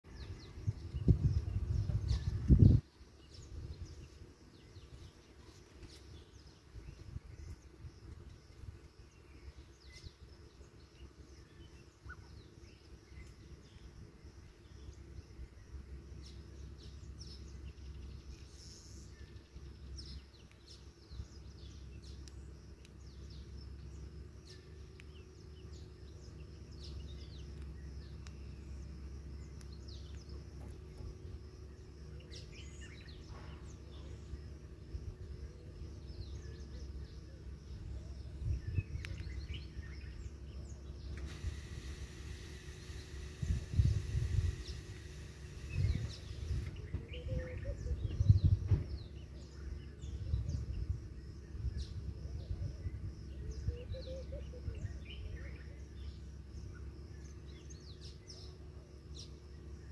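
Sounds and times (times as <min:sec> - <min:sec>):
birds chirping: 0:00.0 - 0:59.9
low rumble: 0:21.0 - 0:53.8.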